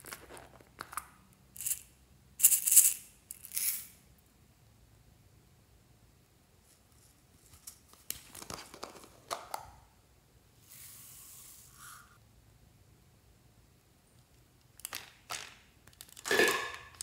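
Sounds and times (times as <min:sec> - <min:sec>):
beads pouring hiss: 0:10.6 - 0:12.2.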